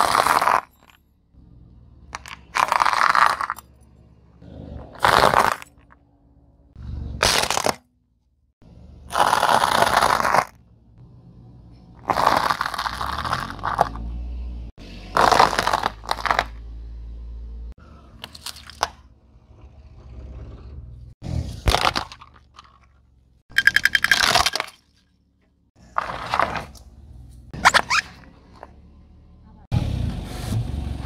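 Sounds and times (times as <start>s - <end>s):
tyre crushing plastic: 21.6s - 22.9s.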